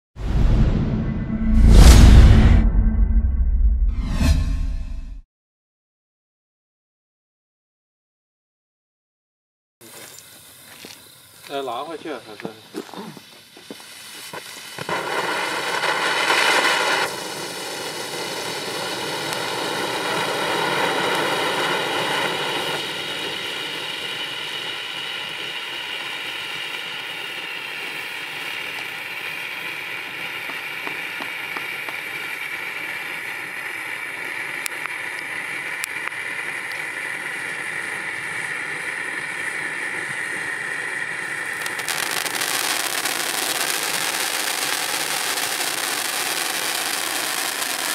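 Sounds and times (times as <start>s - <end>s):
firework fountain hissing: 9.8s - 47.9s.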